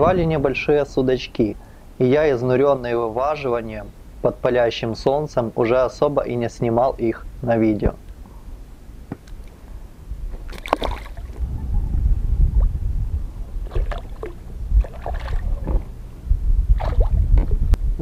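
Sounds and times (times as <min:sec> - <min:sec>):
steady low rumble: 0:06.2 - 0:18.0
water splashing against rubber boat: 0:10.3 - 0:11.5, 0:13.6 - 0:16.0, 0:16.7 - 0:17.6.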